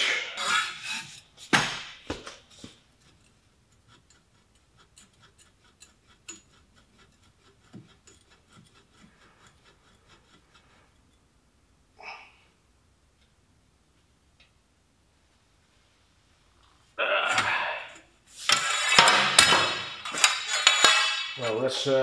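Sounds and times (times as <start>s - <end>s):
socket wrench ticking: 3.0s - 11.2s
loud metal knocks: 18.9s - 21.4s.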